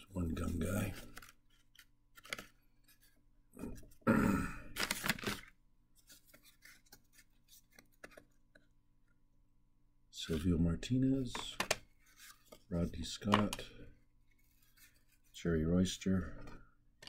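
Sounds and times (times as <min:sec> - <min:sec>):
scraping rustle of cards: 0:00.3 - 0:03.2, 0:04.8 - 0:08.4, 0:11.7 - 0:12.8, 0:14.3 - 0:15.5.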